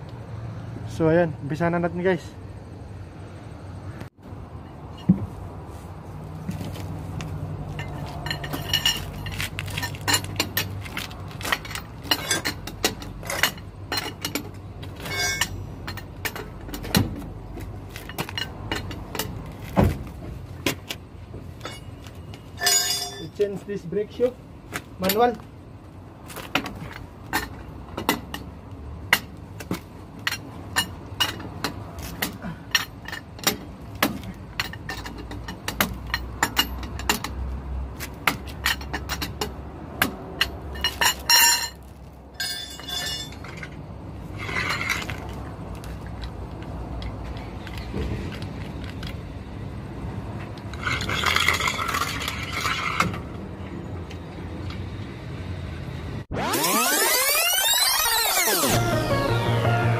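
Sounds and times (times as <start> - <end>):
rattling scrape: 6.5 - 17.2, 21.6 - 23.5, 40.4 - 45.5, 50.7 - 53.3
metal clanks: 7.7 - 23.6, 26.4 - 49.2, 50.4 - 53.8.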